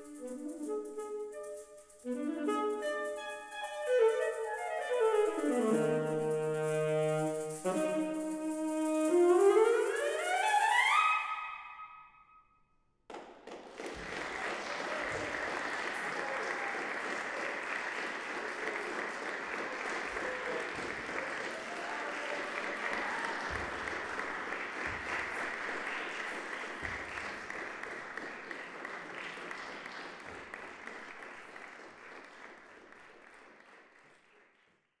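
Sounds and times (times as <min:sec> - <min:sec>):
audience applauding: 0:13.1 - 0:34.9.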